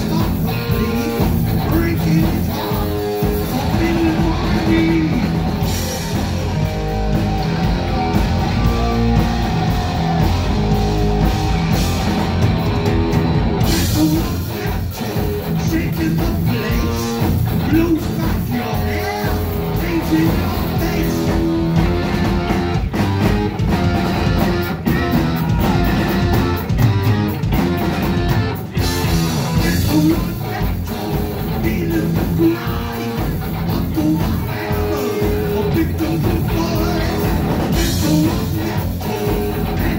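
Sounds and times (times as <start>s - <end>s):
man singing lead vocal: 0.0s - 6.3s, 13.6s - 21.8s, 29.1s - 39.9s
distorted electric guitar: 0.0s - 39.9s
drums: 0.0s - 39.9s.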